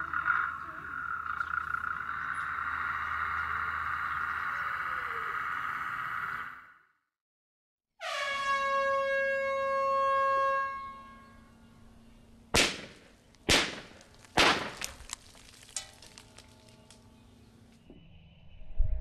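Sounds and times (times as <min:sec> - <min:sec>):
warning air horn: 0:08.0 - 0:12.0
blast bangs: 0:12.6 - 0:14.9
falling rock fragments clicking: 0:13.3 - 0:17.1.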